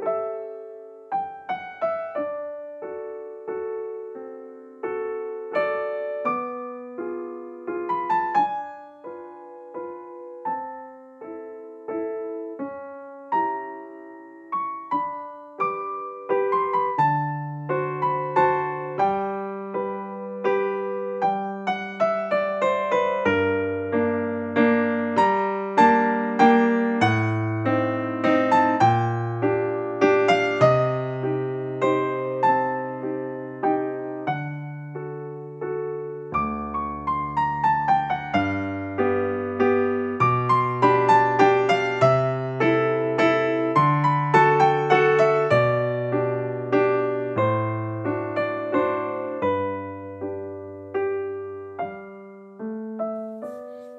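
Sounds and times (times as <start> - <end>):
slow solo piano: 0.0 - 53.9.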